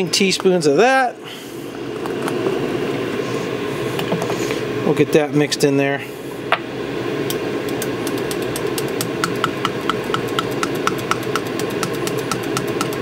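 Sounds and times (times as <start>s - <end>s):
steady background hum: 0.0s - 13.0s
stirrer ticking against glass: 7.8s - 13.0s.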